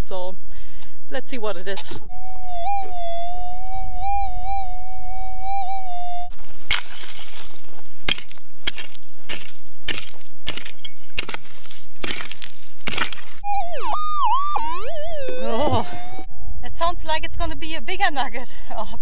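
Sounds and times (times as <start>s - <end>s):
scraping strikes in stony ground: 6.3s - 13.4s
metal detector tone swooping: 13.4s - 16.3s.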